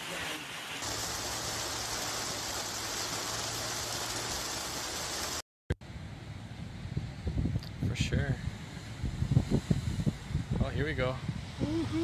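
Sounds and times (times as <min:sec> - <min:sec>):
heavy rain on a car: 0:00.0 - 0:05.4
tyres hissing on wet road: 0:00.0 - 0:05.4.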